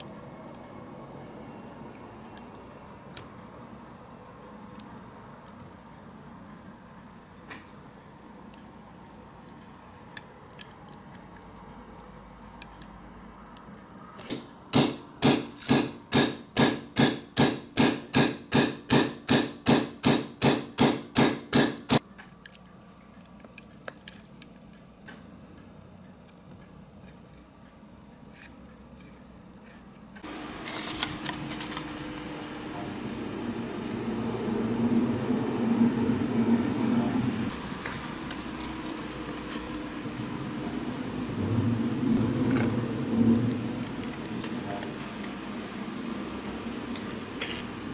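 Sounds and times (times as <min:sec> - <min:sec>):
hammer tapping a steel punch: 0:14.3 - 0:22.0.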